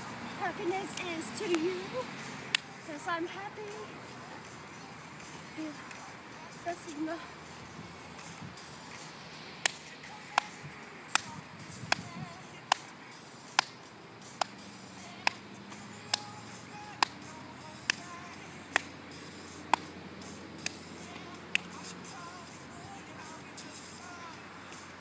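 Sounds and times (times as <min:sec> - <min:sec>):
faint pop music: 0:00.0 - 0:25.0
hands clapping to a beat: 0:02.5 - 0:02.7, 0:09.6 - 0:12.1, 0:12.7 - 0:12.9, 0:13.5 - 0:13.8, 0:14.4 - 0:14.6, 0:15.2 - 0:15.4, 0:16.1 - 0:16.3, 0:16.9 - 0:18.1, 0:18.7 - 0:18.9, 0:19.7 - 0:19.9, 0:20.6 - 0:20.8, 0:21.5 - 0:21.8.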